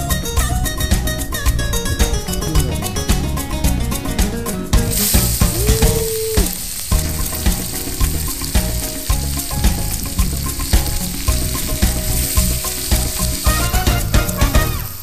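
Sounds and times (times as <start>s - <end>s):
background music with a beat: 0.0s - 15.0s
wood fire crackling: 0.4s - 15.0s
vegetables sizzling in a frying pan: 4.9s - 15.0s.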